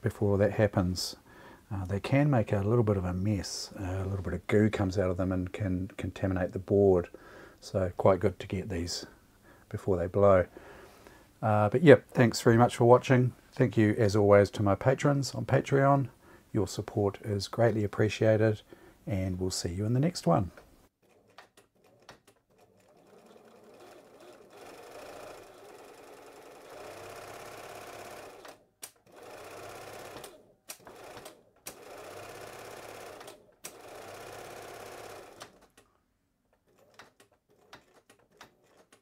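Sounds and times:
sewing machine running: 0:21.0 - 0:35.7.

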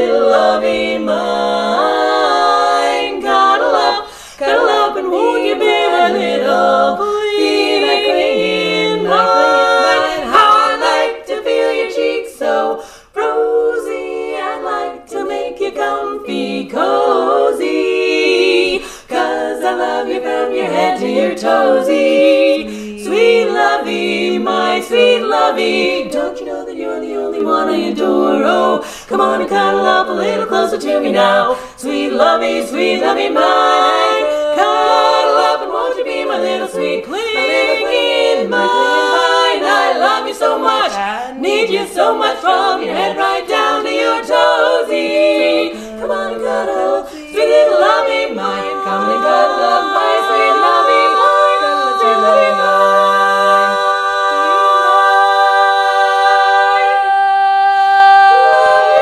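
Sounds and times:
women singing a cappella harmony: 0:00.0 - 0:59.0.

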